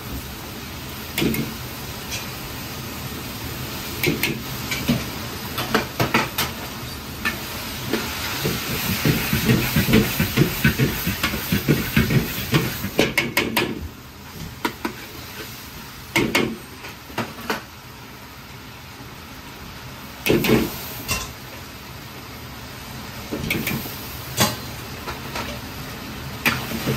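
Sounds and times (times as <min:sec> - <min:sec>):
food sizzling in a wok: 0:00.0 - 0:26.9
metal utensil scraping and clanking wok: 0:04.0 - 0:13.1.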